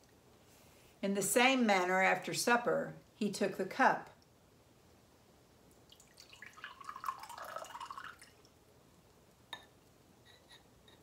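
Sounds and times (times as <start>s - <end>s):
liquid pouring into a cup: 5.9s - 8.6s.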